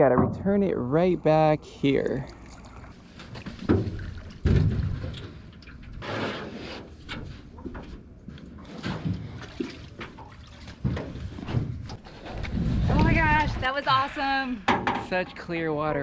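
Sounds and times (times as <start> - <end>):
water splashing around canoe: 2.2 - 13.4.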